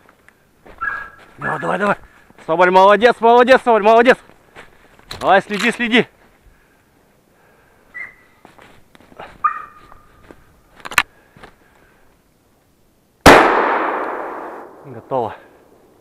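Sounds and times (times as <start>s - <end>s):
footsteps in snow: 0.0s - 6.5s, 7.8s - 11.7s
dog whining: 8.0s - 8.3s, 9.4s - 10.0s
shotgun shot ringing: 13.3s - 15.0s.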